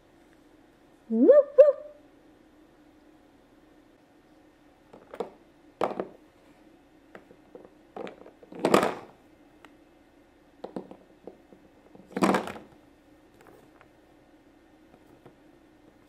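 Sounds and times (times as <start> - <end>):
plastic toys knocking on tabletop: 5.0 - 6.2, 7.6 - 9.1, 10.6 - 12.7.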